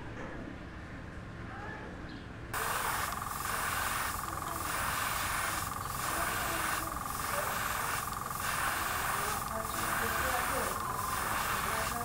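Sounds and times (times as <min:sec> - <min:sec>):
airbrush hissing: 0:02.6 - 0:12.0.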